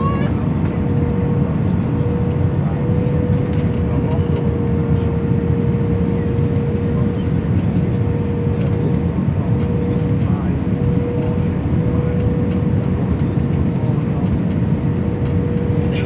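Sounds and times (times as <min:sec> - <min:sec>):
jet engines: 0:00.0 - 0:16.0.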